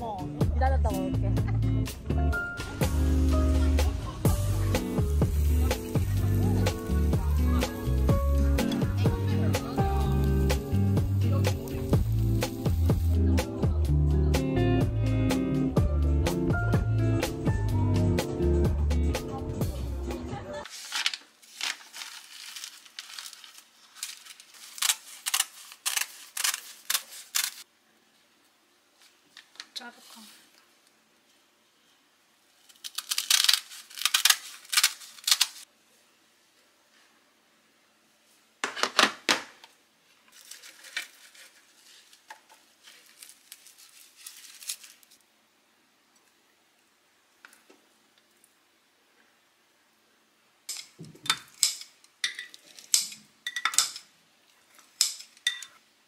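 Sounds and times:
plastic packaging crinkling: 20.6 - 27.7, 32.5 - 35.7, 40.2 - 45.3.

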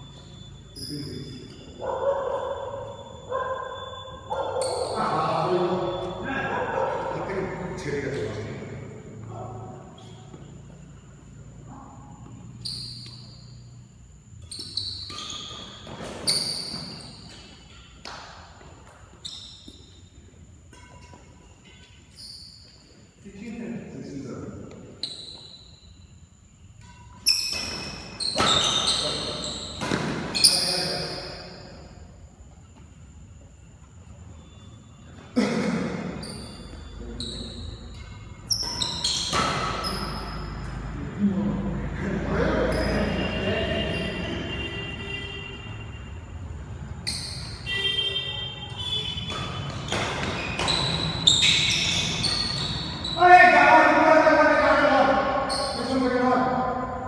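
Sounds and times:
sneakers squeaking on court: 0.0 - 5.1, 9.8 - 23.2, 24.8 - 26.1, 26.8 - 32.0, 35.9 - 40.9, 47.0 - 53.2, 55.4 - 56.0
racket striking shuttlecock: 26.8 - 29.0, 29.8 - 30.4, 39.2 - 39.9, 48.8 - 51.1.

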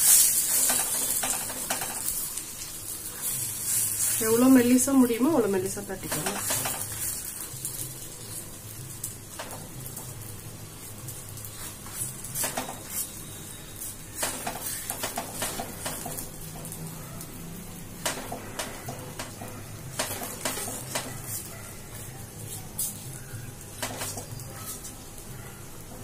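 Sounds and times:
tap against a pan: 9.4 - 9.7, 18.0 - 21.2.

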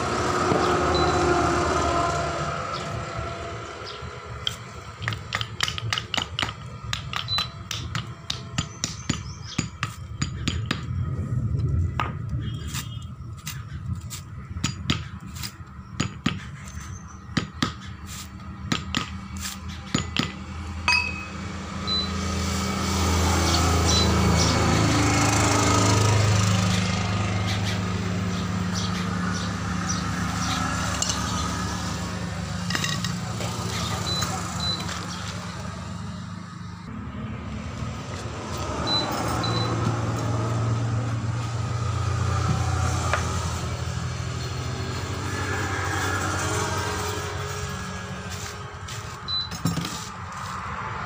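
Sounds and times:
vehicle engine running: 0.0 - 50.6
hammer tapping on metal: 4.5 - 10.9, 19.9 - 21.4.

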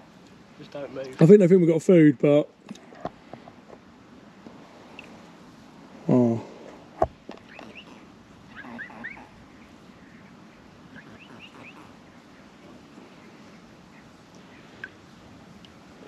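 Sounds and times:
swans squeaking: 7.2 - 15.0.

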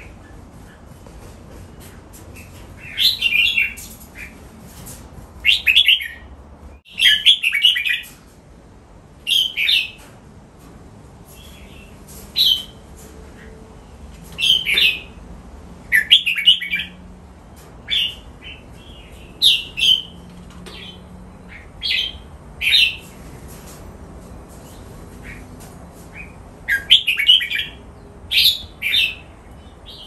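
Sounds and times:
bird singing warbled phrases: 6.9 - 8.1, 14.4 - 15.2, 15.9 - 17.0, 17.9 - 23.0, 26.2 - 30.0.

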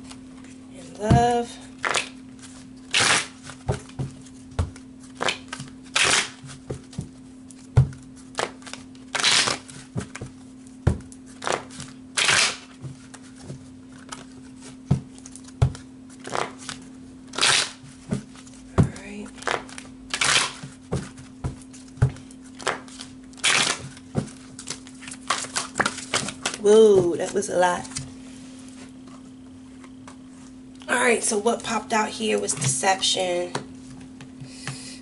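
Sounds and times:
cards being shuffled: 1.2 - 28.1.

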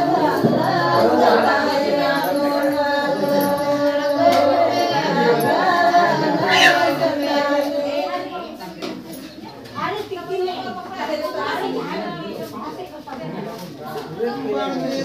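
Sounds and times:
group singing without instruments: 0.0 - 9.0.

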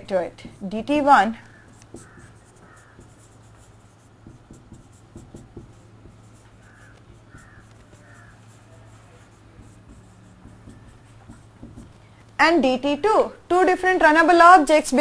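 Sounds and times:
low steady hum: 0.0 - 15.0
marker tapping and scratching: 0.6 - 12.4
marker squeaks: 1.4 - 12.0.

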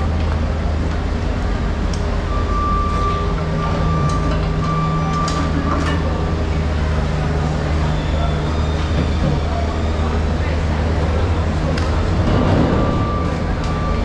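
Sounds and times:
machinery rumbling: 0.0 - 14.0.

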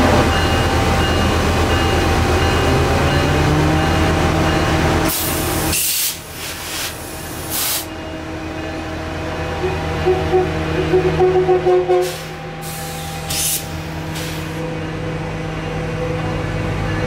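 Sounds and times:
diesel locomotive rumbling: 0.0 - 17.0
loud air hissing bursts: 5.1 - 7.9, 12.0 - 14.6.

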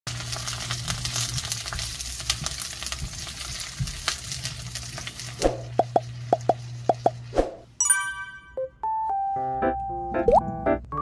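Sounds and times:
food sizzling in a wok: 0.1 - 7.6.

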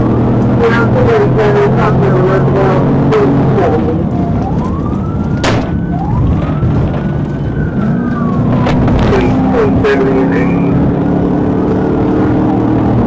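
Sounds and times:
car engine and road noise: 0.0 - 13.0
police siren wailing: 0.0 - 13.0.

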